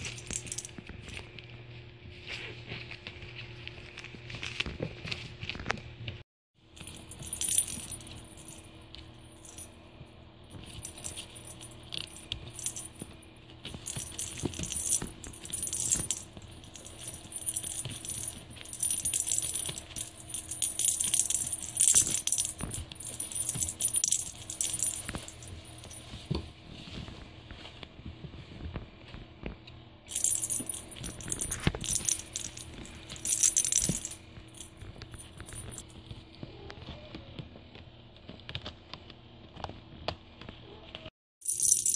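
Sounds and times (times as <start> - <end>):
small bell jingling and rattling: 0.0 - 0.8, 6.7 - 9.8, 10.5 - 26.3, 30.1 - 35.9, 41.4 - 41.9.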